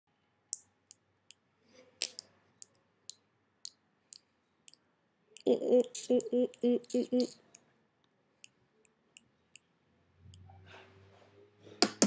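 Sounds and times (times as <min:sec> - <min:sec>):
lips smacking kissing pops: 0:02.0 - 0:02.3
person speaking: 0:05.4 - 0:07.5.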